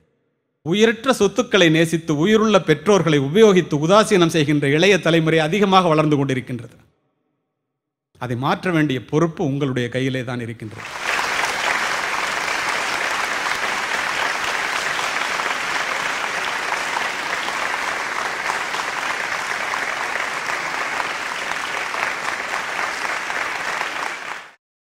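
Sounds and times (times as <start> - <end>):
audience applauding: 10.7 - 24.6.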